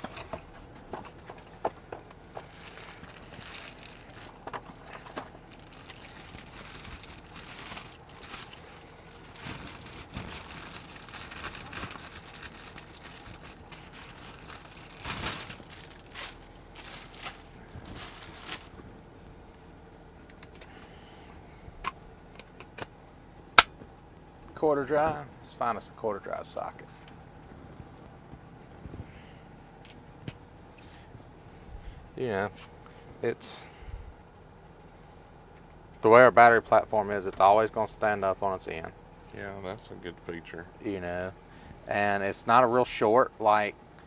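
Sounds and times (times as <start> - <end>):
plastic bag crinkling: 2.3 - 18.8.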